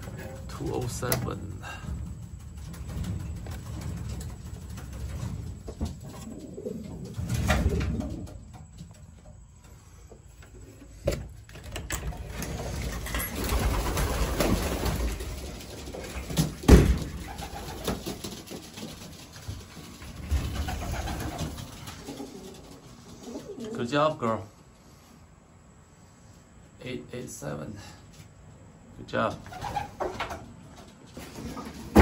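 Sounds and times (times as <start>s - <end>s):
sharp clicks and knocks: 0.0s - 6.3s
pigeons cooing: 1.5s - 8.8s, 13.6s - 18.4s, 20.0s - 24.0s.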